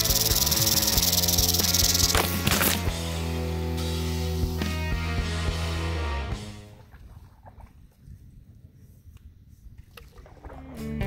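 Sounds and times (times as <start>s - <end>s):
rattlesnake rattle buzzing: 0.0s - 3.0s
background music: 0.0s - 6.8s, 10.5s - 11.0s.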